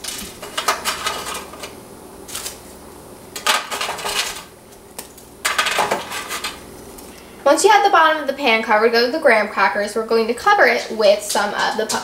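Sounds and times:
crackers clattering in metal pan: 0:00.0 - 0:02.6, 0:03.3 - 0:06.7.

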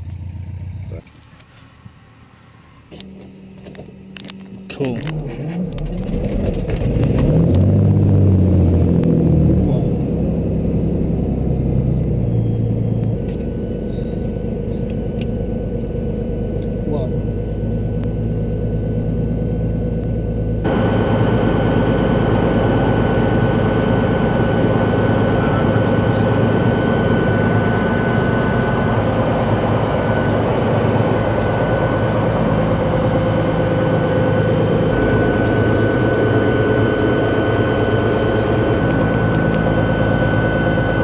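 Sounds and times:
aircraft engine idling: 0:00.0 - 0:41.0
constant high tone: 0:12.0 - 0:21.5, 0:22.9 - 0:41.0.

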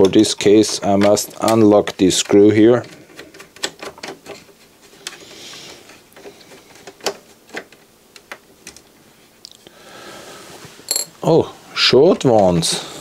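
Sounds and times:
plastic parts clicking and tapping: 0:00.0 - 0:05.2, 0:05.8 - 0:08.9.

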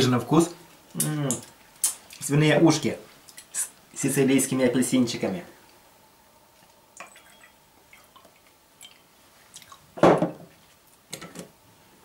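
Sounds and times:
wet food handling sounds: 0:07.8 - 0:11.1.

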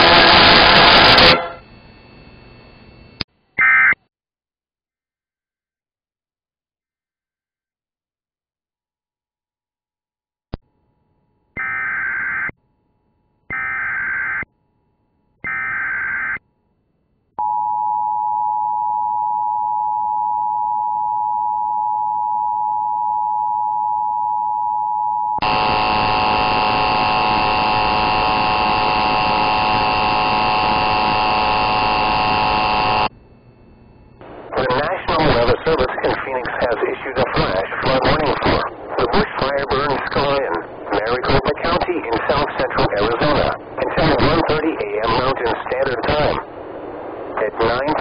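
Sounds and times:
harsh loud tone: 0:00.0 - 0:01.7, 0:25.4 - 0:33.1.

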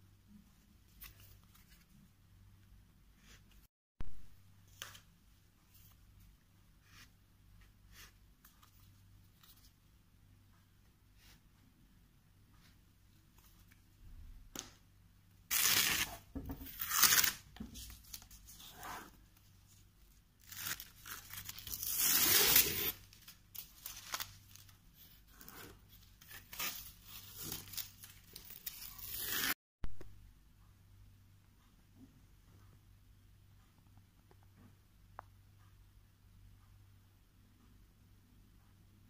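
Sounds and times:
masking tape peeling off paper: 0:15.5 - 0:16.2, 0:16.8 - 0:17.4.

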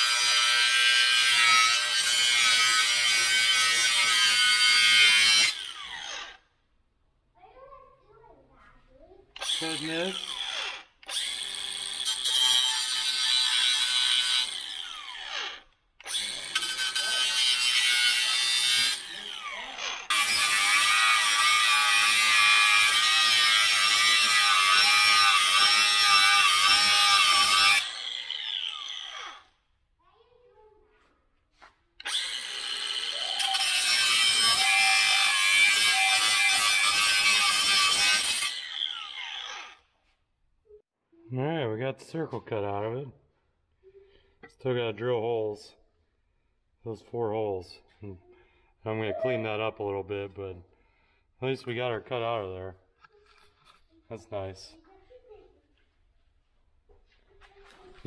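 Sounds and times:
angle grinder cutting steel: 0:00.0 - 0:06.4, 0:09.4 - 0:29.5, 0:32.0 - 0:39.9.

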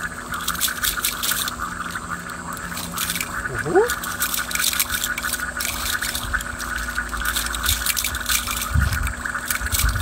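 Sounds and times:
steady high hum: 0:00.0 - 0:10.0
fishing net rustling and scratching: 0:00.3 - 0:10.0
wind rumble on microphone: 0:08.6 - 0:10.0.

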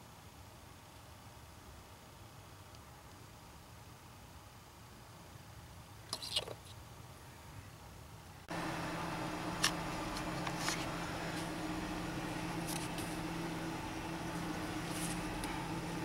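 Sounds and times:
car engine idling: 0:08.5 - 0:16.0.

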